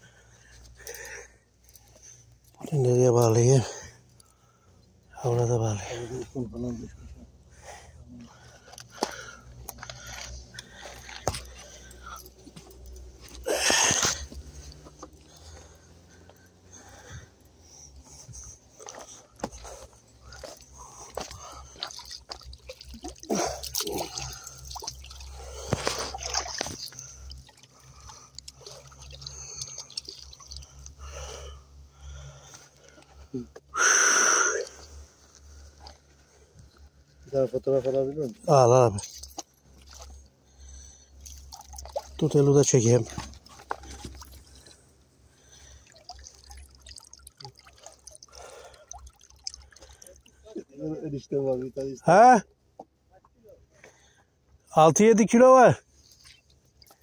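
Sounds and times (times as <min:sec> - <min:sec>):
water dripping and splashing: 0:08.4 - 0:31.4, 0:38.5 - 0:52.0, 0:56.0 - 0:57.0
hand splashing shallow water: 0:20.3 - 0:30.9, 0:41.3 - 0:42.2.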